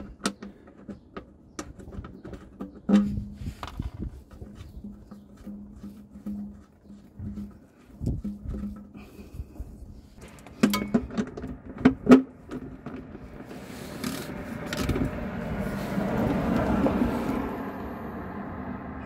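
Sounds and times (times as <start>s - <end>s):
metal clinks and knocks: 10.2s - 13.3s
vehicle passing: 13.1s - 19.0s.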